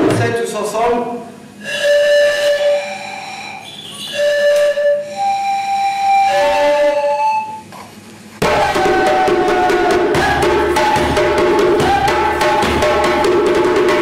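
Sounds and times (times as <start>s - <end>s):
held whistle notes: 1.6s - 7.7s
hand drumming: 8.4s - 14.0s.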